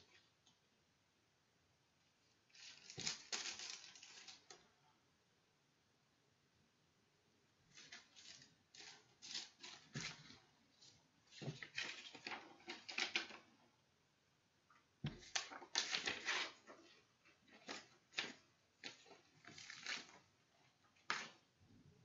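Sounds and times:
paper rustling and crinkling: 2.5s - 4.6s, 7.7s - 13.5s, 15.1s - 21.4s.

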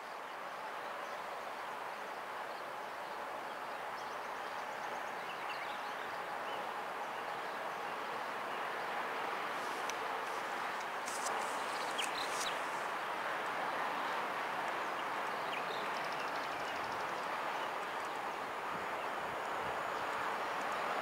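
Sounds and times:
birds chirping faintly: 9.6s - 12.9s.

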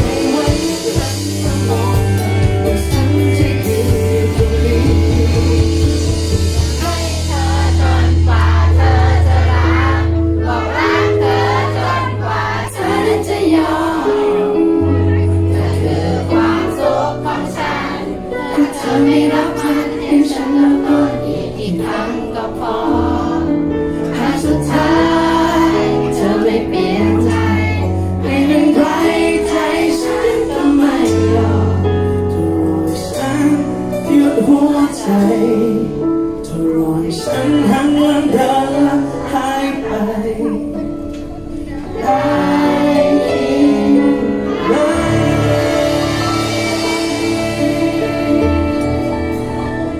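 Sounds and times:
man singing pop ballad: 0.0s - 9.0s, 24.1s - 41.0s, 41.8s - 49.9s
backing music with bass: 0.0s - 49.9s.

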